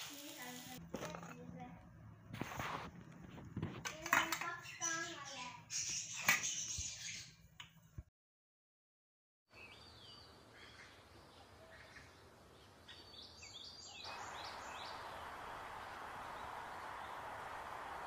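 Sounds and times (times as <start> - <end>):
small birds chirping: 4.4 - 7.4, 9.5 - 18.0
outdoor background hiss: 9.6 - 18.0.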